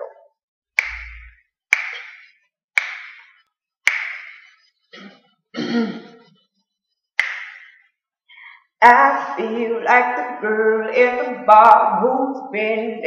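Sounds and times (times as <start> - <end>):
hand claps: 0.8 - 4.5, 7.2 - 7.8
woman's voice: 8.8 - 13.0.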